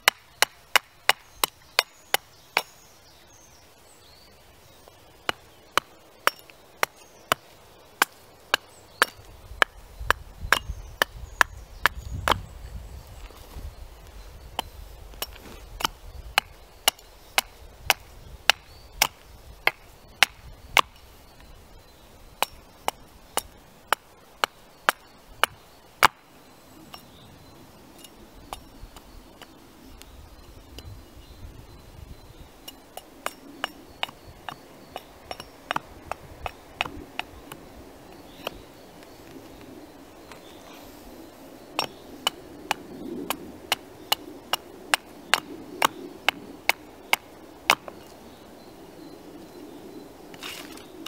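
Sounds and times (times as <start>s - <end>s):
axe chopping wood: 0.0s - 2.8s, 5.2s - 12.4s, 14.6s - 21.0s, 22.4s - 26.2s, 33.0s - 37.7s, 41.8s - 48.1s.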